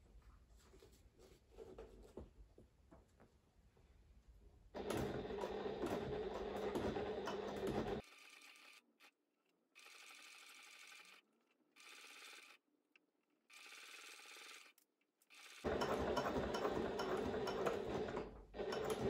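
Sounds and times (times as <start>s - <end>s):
sewing machine stitching: 4.8s - 9.1s, 9.8s - 11.2s, 11.8s - 12.6s, 13.5s - 19.0s.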